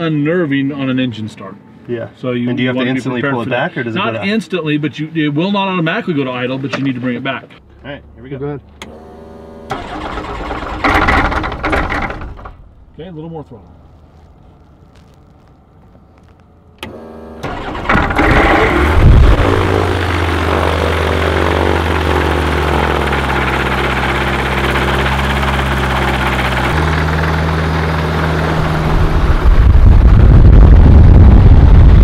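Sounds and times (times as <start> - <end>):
electric starter turning over: 8.8 - 12.6, 16.8 - 30.3
aircraft engine running: 17.4 - 32.0.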